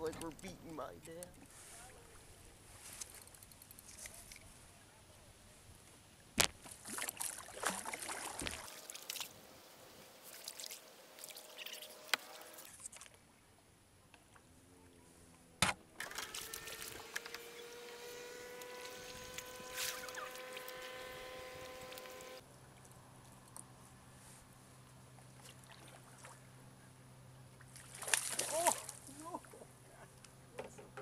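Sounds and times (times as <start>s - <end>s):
paddle splashing water: 6.7s - 13.3s, 18.6s - 22.8s, 25.2s - 26.5s, 27.6s - 29.5s
steady hum: 16.6s - 22.4s.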